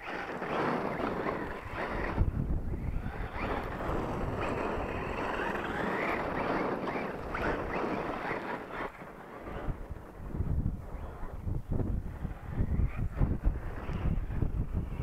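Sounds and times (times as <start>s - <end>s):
electric motor whining: 0.0s - 9.8s
wind buffeting microphone: 0.0s - 15.0s.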